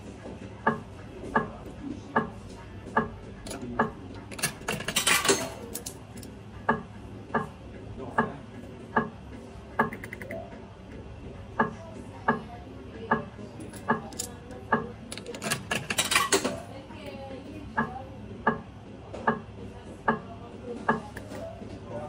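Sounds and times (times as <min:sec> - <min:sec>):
slot machine clicking: 0:03.4 - 0:06.3, 0:09.8 - 0:10.5, 0:13.6 - 0:16.6
metallic coin clatter: 0:04.3 - 0:06.3, 0:15.1 - 0:16.6.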